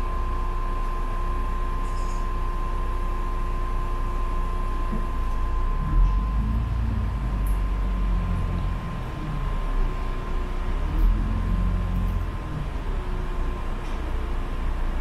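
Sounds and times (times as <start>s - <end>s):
bus engine and road rumble: 0.0s - 15.0s
thin steady whine: 0.0s - 15.0s
bus jolts: 5.9s - 15.0s.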